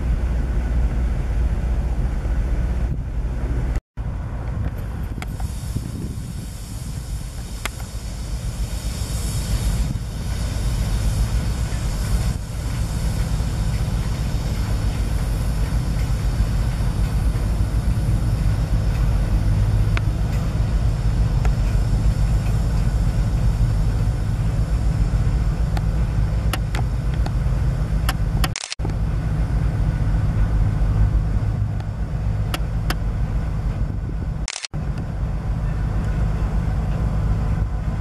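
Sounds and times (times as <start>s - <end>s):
diesel locomotive engine rumbling: 0.0s - 38.0s
sharp metallic clicks: 28.1s - 29.0s, 34.5s - 34.8s.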